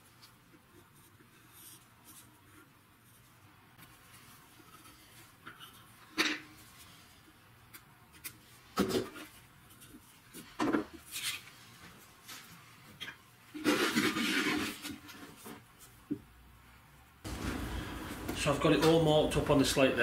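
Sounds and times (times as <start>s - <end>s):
rubbing and handling: 0.0s - 16.1s
pencil scratching on slate: 0.8s - 3.3s.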